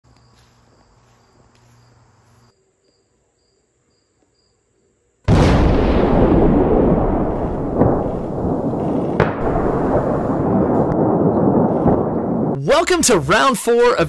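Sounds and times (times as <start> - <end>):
faint insects chirping: 0.0 - 5.3
huge explosion rumbling: 5.3 - 12.8.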